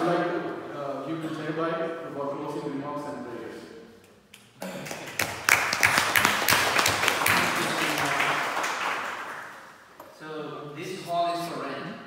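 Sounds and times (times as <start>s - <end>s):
audience applauding: 4.8s - 9.8s.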